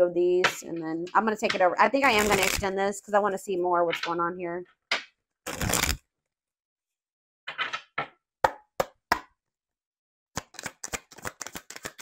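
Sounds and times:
cards shuffling: 2.1s - 2.6s, 5.5s - 6.0s, 10.4s - 12.0s.

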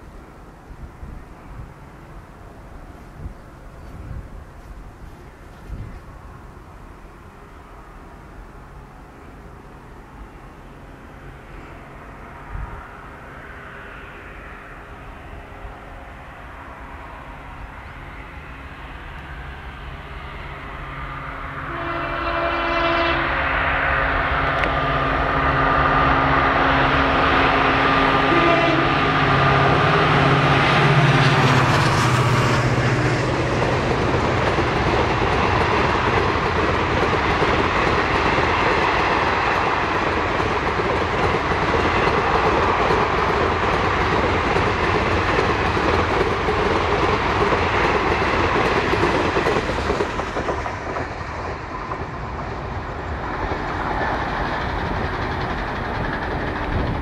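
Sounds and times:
diesel locomotive engine droning: 0.0s - 57.0s
train wheels clattering on rails: 27.1s - 57.0s.

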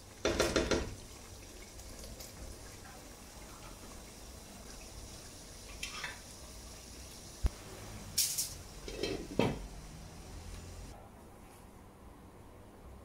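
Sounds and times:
cookware knocking and clattering: 0.2s - 0.9s, 8.2s - 9.6s.

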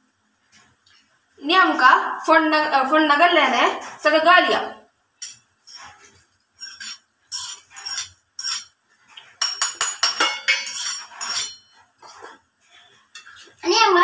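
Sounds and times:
metal utensils clinking on dishes: 5.2s - 13.8s.

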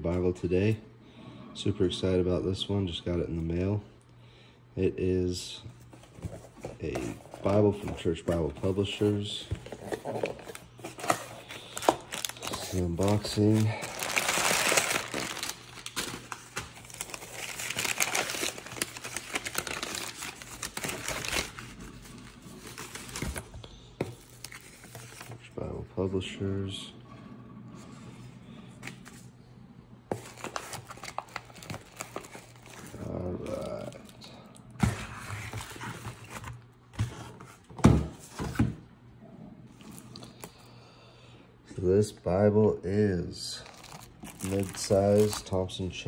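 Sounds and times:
packing paper crinkling: 6.2s - 25.4s, 30.1s - 36.6s, 43.6s - 46.0s.

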